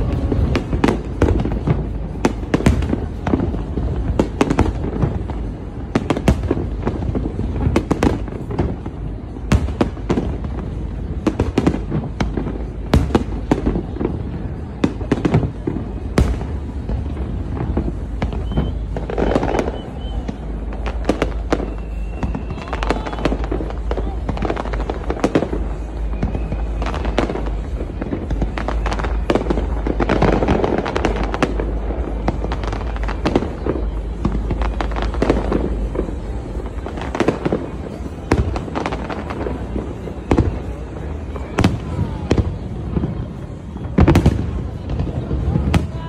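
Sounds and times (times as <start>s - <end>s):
fireworks bursting: 0.0s - 46.0s
low background rumble: 0.0s - 46.0s.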